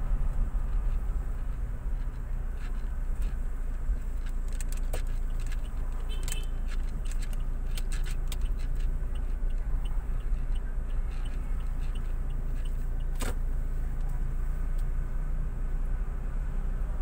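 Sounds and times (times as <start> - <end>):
road and engine rumble: 0.0 - 17.0
light clicks and jingles: 0.7 - 13.1.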